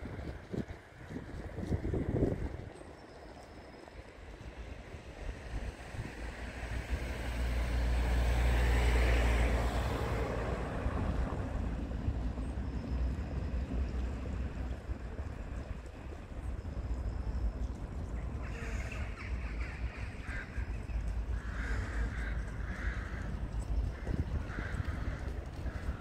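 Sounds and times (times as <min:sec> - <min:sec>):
wind buffeting microphone: 0:00.0 - 0:03.0, 0:21.4 - 0:26.0
vehicle passing by: 0:06.0 - 0:12.3.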